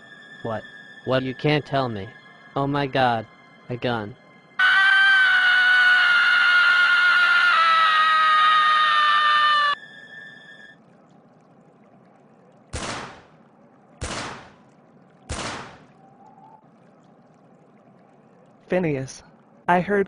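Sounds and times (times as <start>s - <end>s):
gunshots: 12.7s - 13.3s, 14.0s - 14.6s, 15.3s - 15.9s.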